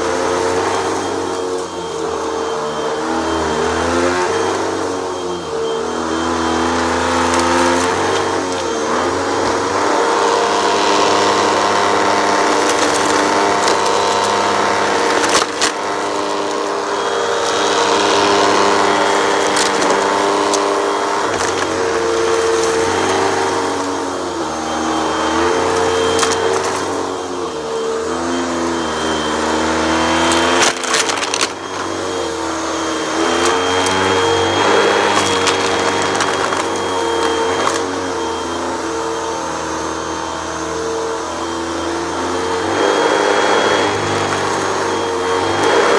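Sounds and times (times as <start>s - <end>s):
vacuum cleaner motor drone: 0.0s - 45.9s.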